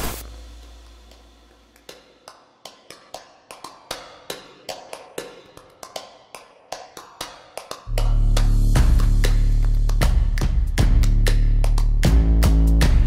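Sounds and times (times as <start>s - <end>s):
loud bass-heavy music: 7.9s - 13.0s.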